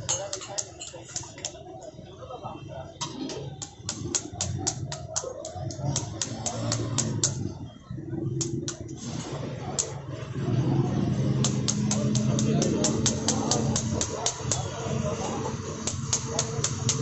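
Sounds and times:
knife tapping pomegranate: 3.6s - 7.4s, 11.4s - 14.7s.

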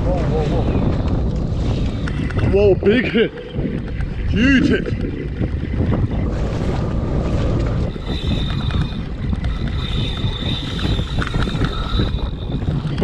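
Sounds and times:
wind buffeting microphone: 0.0s - 13.0s
fishing reel drag screaming: 7.9s - 13.0s.

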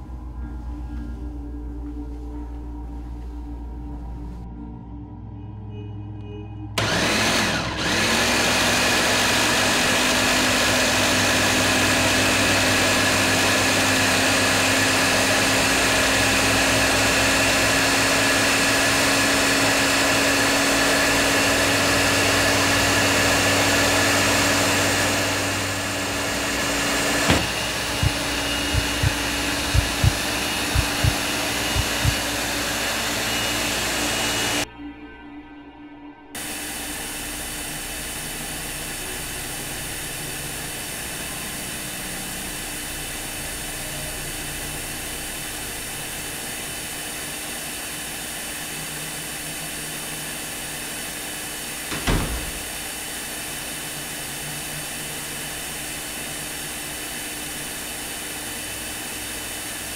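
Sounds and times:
blender motor whine: 6.8s - 34.7s, 36.4s - 59.9s
blender click: 26.0s - 34.6s
low thumps: 27.3s - 32.3s.

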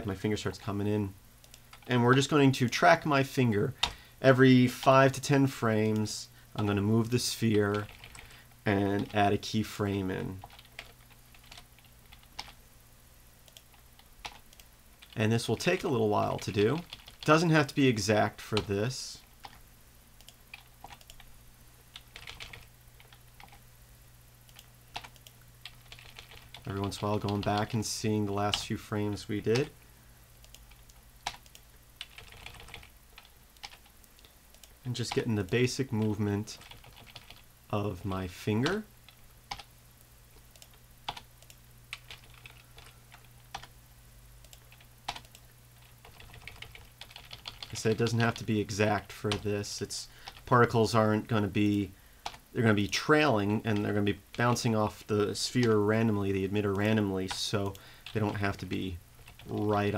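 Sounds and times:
low steady hum: 0.0s - 59.9s
keyboard and mouse clicks: 20.2s - 21.3s.

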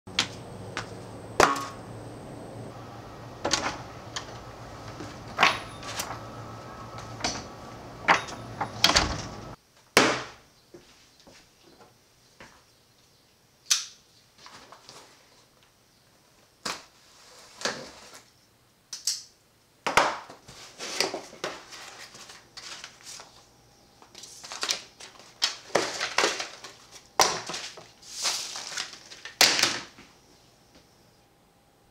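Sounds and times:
low hum: 0.1s - 9.6s.

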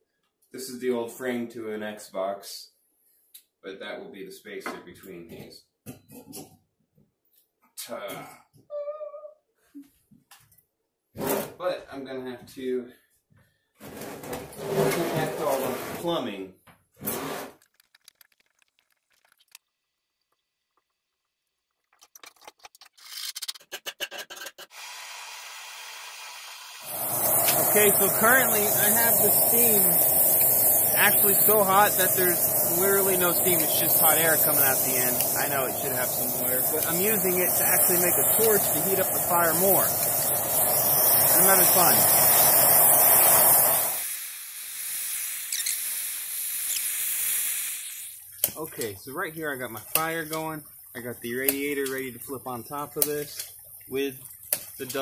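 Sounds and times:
metal tubing clicks and scrapes: 21.8s - 24.7s
steady hiss: 24.8s - 55.0s.

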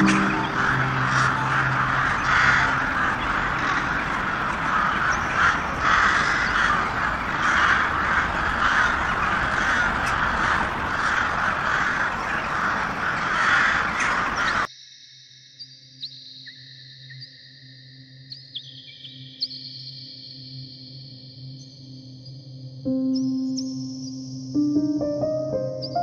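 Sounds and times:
crows cawing: 0.0s - 14.7s.

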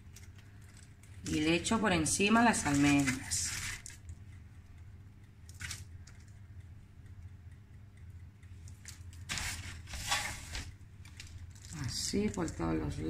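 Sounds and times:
low steady hum: 0.0s - 13.0s
almonds rustling onto pastry: 0.1s - 4.0s, 8.7s - 13.0s.

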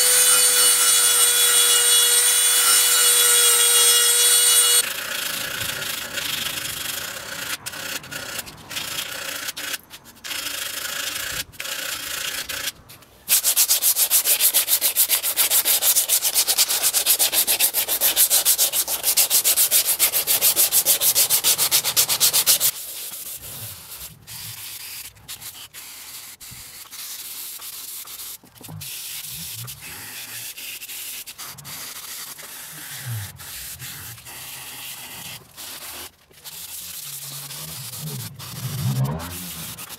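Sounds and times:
wooden spoon sanding strokes: 0.0s - 4.9s, 13.3s - 39.9s.

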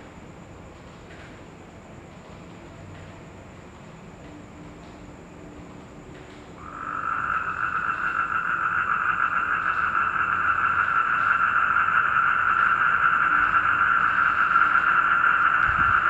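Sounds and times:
toads trilling: 6.6s - 16.0s.

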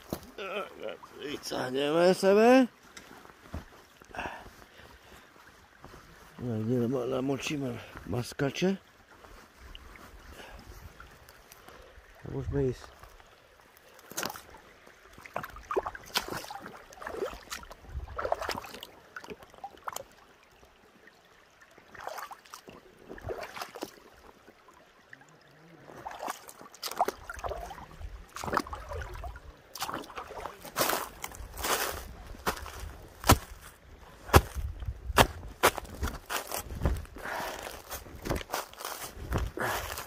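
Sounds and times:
crunching footsteps: 2.8s - 6.4s, 29.8s - 40.0s.

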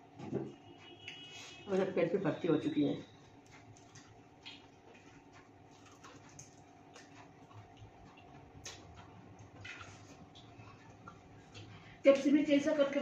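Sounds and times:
clicks of people eating: 2.6s - 13.0s
soft chewing: 3.0s - 12.3s.

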